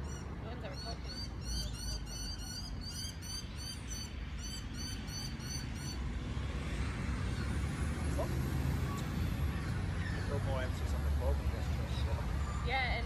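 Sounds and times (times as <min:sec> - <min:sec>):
bird chirping: 0:00.0 - 0:06.0
distant traffic rumble: 0:00.0 - 0:13.0.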